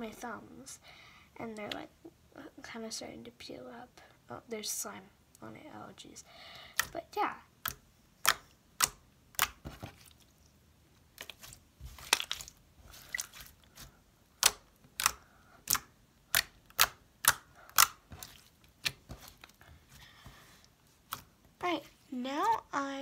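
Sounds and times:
slime being kneaded by hand: 6.8s - 22.8s
slime popping and clicking: 7.6s - 9.6s, 14.4s - 19.0s.

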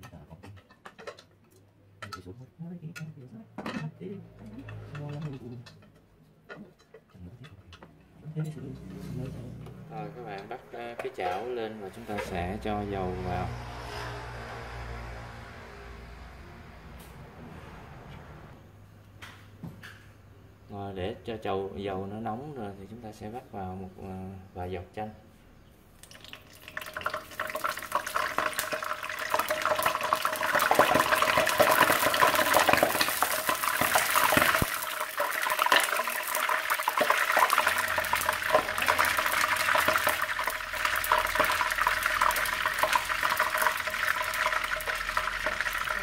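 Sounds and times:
hot oil sizzling and crackling: 10.2s - 16.0s, 26.0s - 46.0s.

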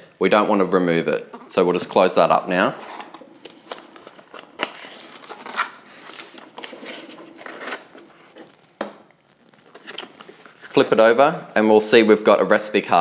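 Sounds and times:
card scraping and clicking: 2.8s - 8.8s
cardboard flaps being folded: 2.8s - 10.9s.

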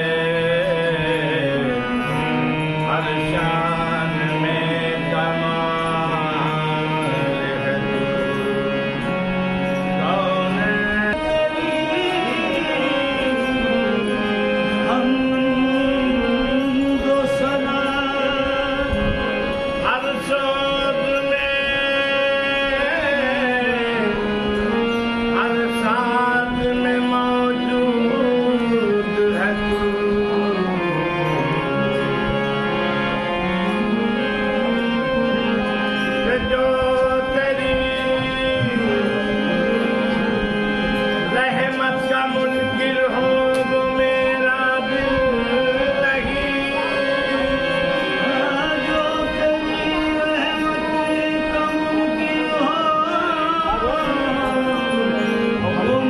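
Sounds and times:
harmonium: 0.0s - 56.0s
person singing: 0.0s - 56.0s
tabla: 0.0s - 56.0s.

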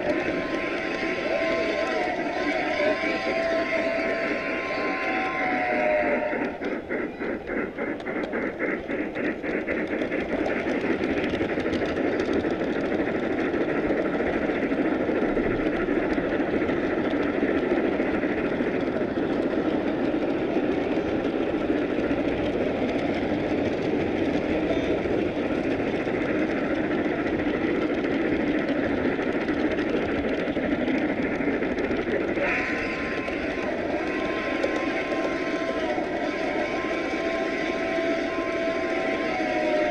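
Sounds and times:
model train wheels rolling: 0.0s - 39.9s.

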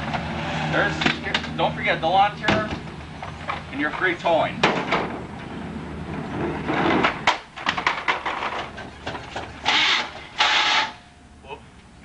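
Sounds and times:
car doors and body knocking: 2.4s - 3.6s, 4.6s - 5.3s.

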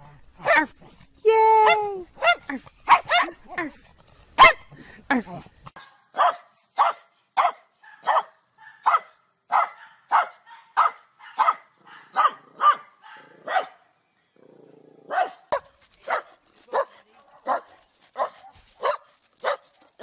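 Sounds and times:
dog barking: 2.2s - 3.4s, 4.4s - 4.7s, 5.8s - 13.8s, 15.1s - 19.7s.

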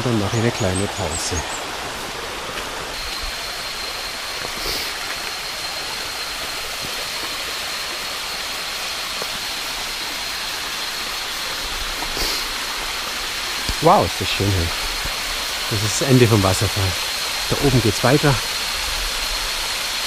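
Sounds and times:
waterfall rushing over rocks: 0.0s - 20.0s.

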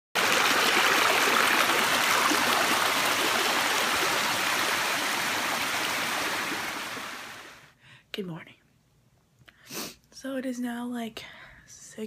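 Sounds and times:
water rushing over rock: 0.2s - 7.6s.

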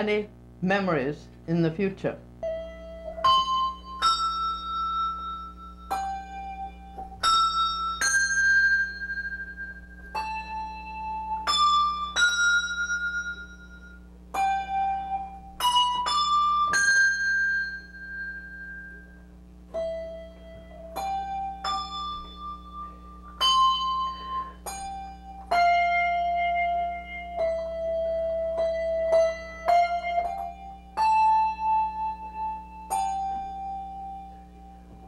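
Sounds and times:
handbells ringing a melody: 2.7s - 26.4s.

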